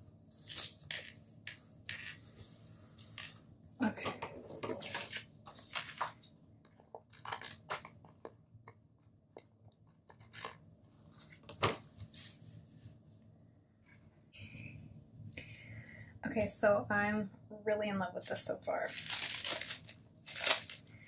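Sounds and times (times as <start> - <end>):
paper rustling: 4.5 - 6.3, 18.9 - 20.8.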